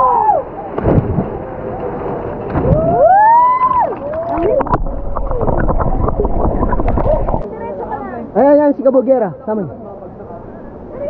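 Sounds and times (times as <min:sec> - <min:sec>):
people yelling and whooping: 0:00.0 - 0:00.6, 0:02.7 - 0:05.3.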